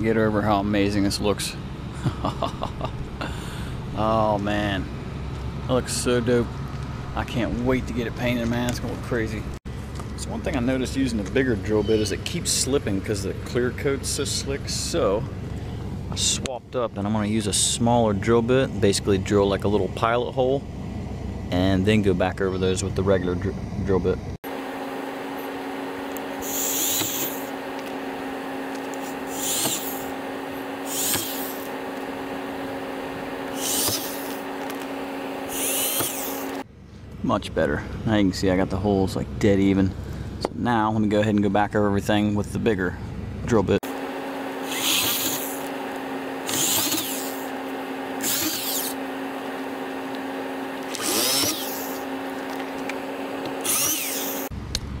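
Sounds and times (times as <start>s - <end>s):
electric drill whining: 25.3s - 32.8s, 33.4s - 36.6s, 44.5s - 49.2s, 50.0s - 54.5s
drill bit grinding fiberglass: 26.1s - 36.6s, 44.5s - 54.5s.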